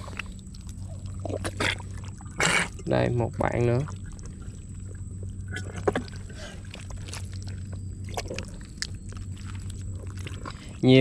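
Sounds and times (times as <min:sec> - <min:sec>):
hands squelching in wet mud: 0:03.5 - 0:11.0.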